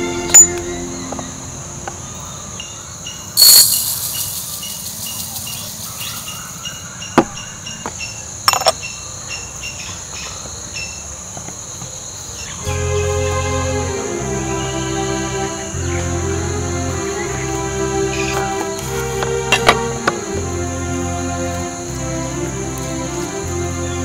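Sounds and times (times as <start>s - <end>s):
insects chirping: 0.0s - 24.0s
glass clink: 3.4s - 6.4s.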